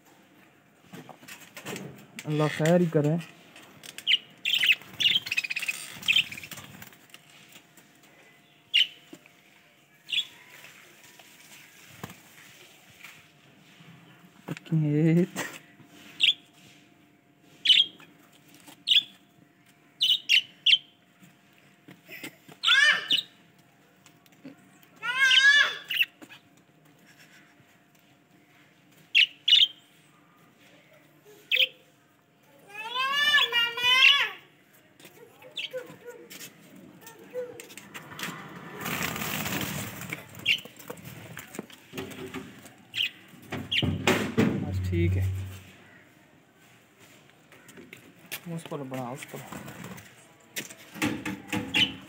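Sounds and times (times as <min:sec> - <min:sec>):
sharp knock: 0:43.9 - 0:45.7.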